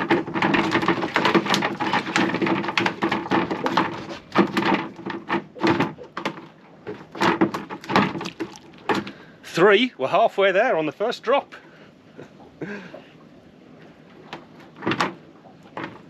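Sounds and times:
fish flapping on boat: 0.0s - 9.3s.

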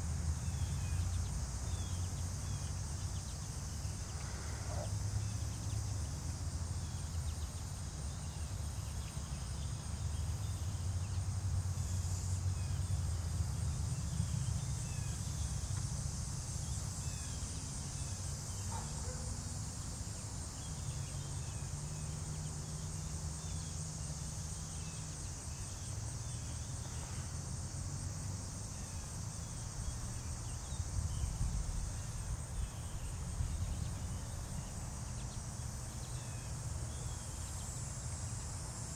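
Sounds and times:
crickets trilling: 0.0s - 38.9s.

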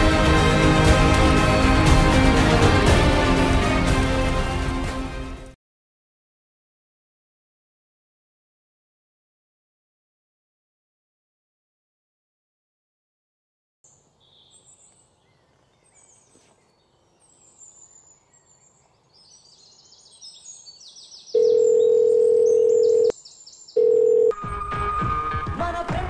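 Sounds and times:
music: 0.0s - 5.6s, 24.3s - 26.0s
birds chirping: 13.9s - 24.3s
telephone ringing tone: 21.4s - 23.1s, 23.8s - 24.4s.

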